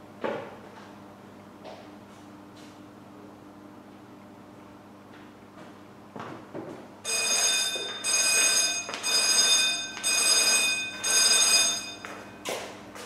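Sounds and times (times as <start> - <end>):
electronic bell ringing: 7.1 - 12.4.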